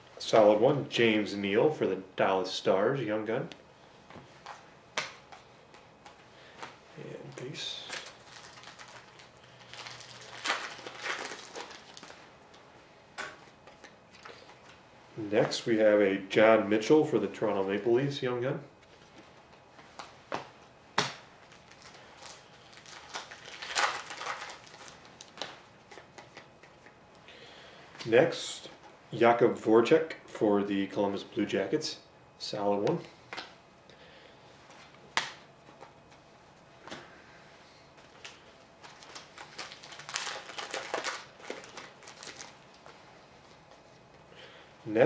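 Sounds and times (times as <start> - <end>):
cards flicking and rustling: 4.2 - 12.2, 19.1 - 27.0
wrapper crinkling: 7.3 - 12.7, 21.4 - 26.9, 38.2 - 43.0.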